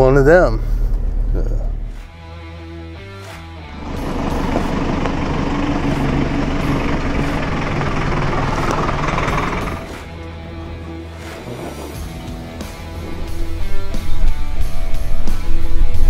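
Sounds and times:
truck engine running: 3.7s - 16.0s
tyres rolling over dirt and stones: 3.8s - 10.0s.

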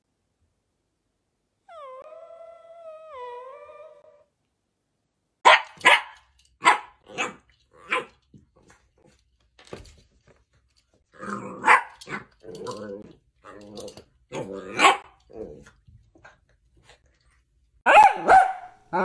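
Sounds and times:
dog barking: 5.4s - 8.1s, 11.6s - 12.0s, 14.7s - 15.1s, 17.8s - 19.0s.

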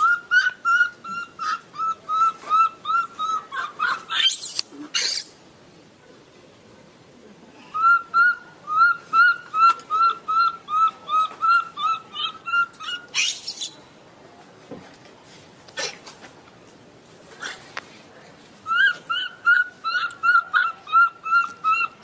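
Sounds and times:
monkey harsh scream: 0.0s - 5.3s, 7.8s - 13.8s, 18.7s - 22.0s
baby monkey distress calls: 0.0s - 5.4s, 7.8s - 13.8s, 18.6s - 22.0s.

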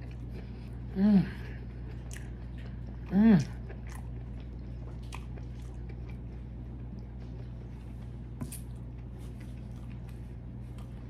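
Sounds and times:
close chewing wet mouth sounds: 0.0s - 8.0s
steady low hum: 0.0s - 11.0s.

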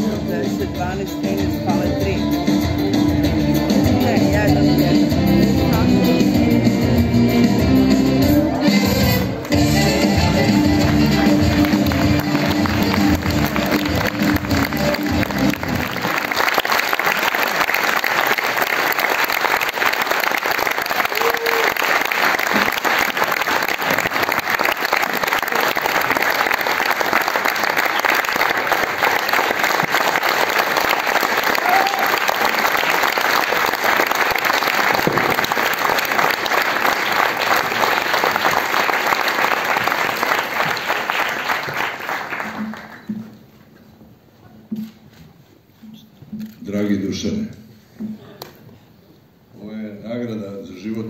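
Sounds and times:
audience applauding: 9.2s - 43.3s.

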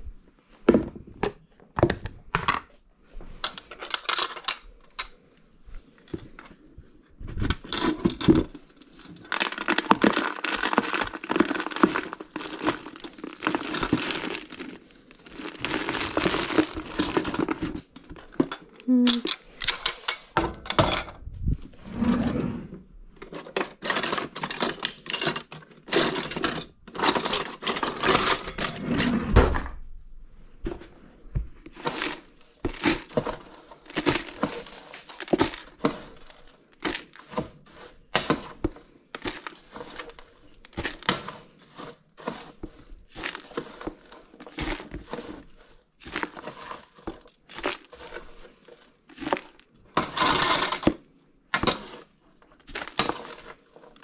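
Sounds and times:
drawer and utensils rattling: 7.3s - 29.8s, 49.2s - 52.0s.

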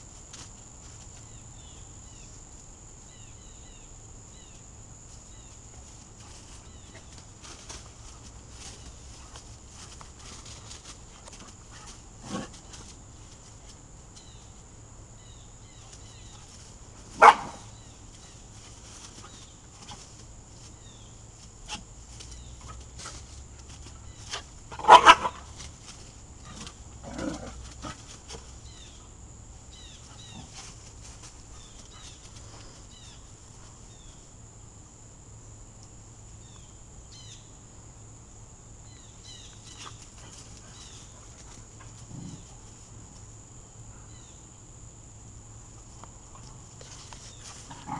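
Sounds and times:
dog barks: 17.2s - 17.7s, 24.7s - 25.5s
dogs play-fighting: 22.5s - 28.6s.

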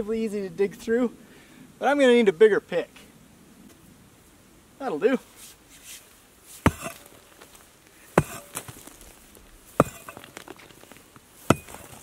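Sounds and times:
pickaxe striking rock: 6.6s - 7.3s, 8.1s - 9.0s, 9.7s - 10.8s, 11.4s - 12.0s.

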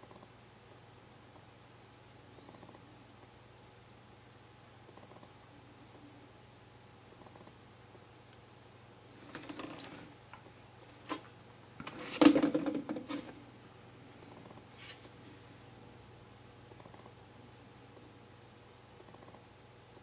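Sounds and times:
faint steady hum: 0.0s - 20.0s
plastic clattering on track: 11.1s - 13.4s.

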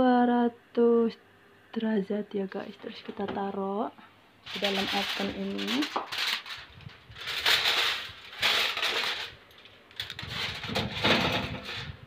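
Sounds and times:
aluminium foil crinkling: 4.4s - 11.9s.

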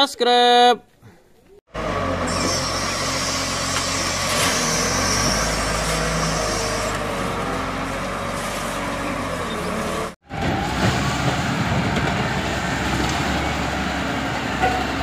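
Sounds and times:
wheel loader diesel engine: 1.7s - 15.0s
gravel dumping into truck: 3.8s - 7.1s.

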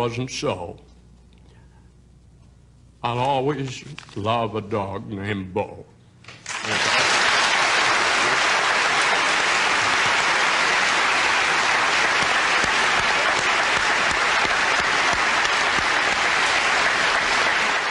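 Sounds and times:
audience applauding: 6.4s - 17.9s.

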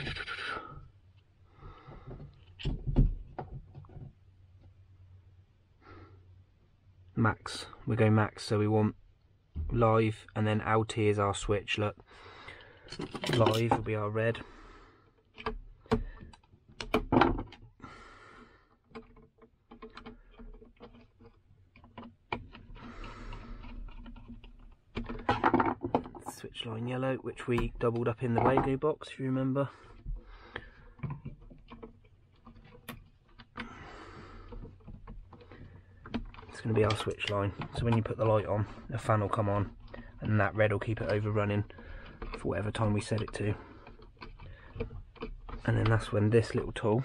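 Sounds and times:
plastic cover knocks and clicks: 15.9s - 17.6s.

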